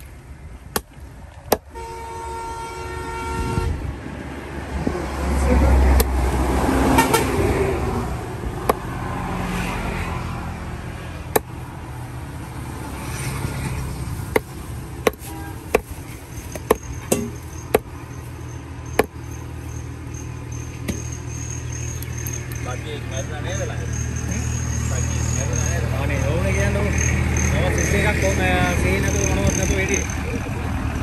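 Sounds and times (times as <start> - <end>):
steady traffic noise: 0.0 - 31.0
vehicle passing loudly: 4.0 - 15.0.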